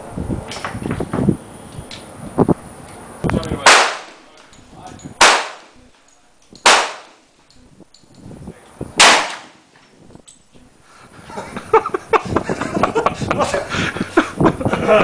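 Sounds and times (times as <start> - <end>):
pistol shots with echo: 3.6 - 4.3, 5.2 - 5.8, 6.6 - 7.2, 9.0 - 9.6.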